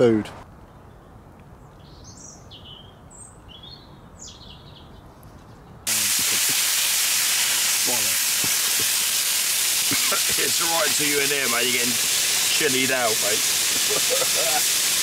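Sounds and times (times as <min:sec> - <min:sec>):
bird chirping: 0:00.6 - 0:05.8
peppers and meat sizzling in pan: 0:05.9 - 0:15.0.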